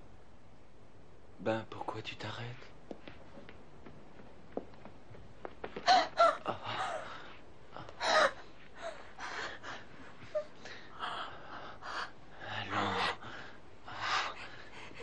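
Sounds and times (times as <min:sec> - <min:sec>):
woman sobbing: 0:05.8 - 0:11.1.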